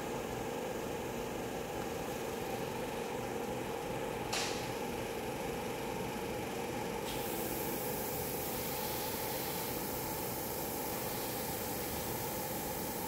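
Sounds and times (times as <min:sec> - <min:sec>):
steady machine hum: 0:00.0 - 0:13.0
steady higher hiss: 0:07.2 - 0:13.0.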